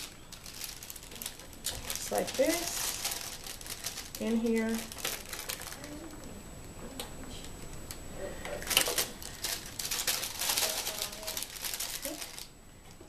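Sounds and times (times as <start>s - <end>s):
plastic film crinkling: 0.0s - 6.3s, 8.6s - 12.5s.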